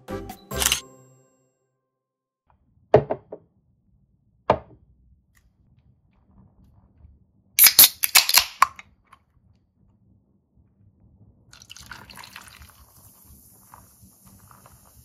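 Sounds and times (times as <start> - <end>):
beer cans cracking open: 7.6 - 8.8
beer pouring and fizzing: 11.6 - 15.0.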